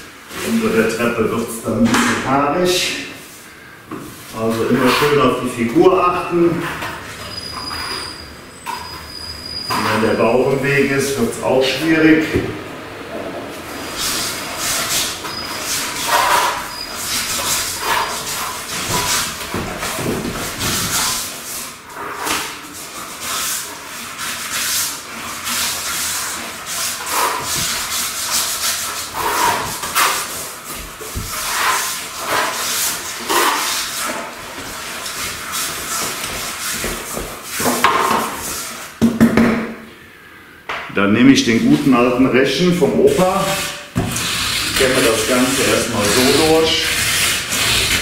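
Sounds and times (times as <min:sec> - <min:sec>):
trowel scraping wet compound: 0:04.3 - 0:08.2, 0:09.6 - 0:10.6, 0:13.8 - 0:38.9, 0:43.0 - 0:48.0.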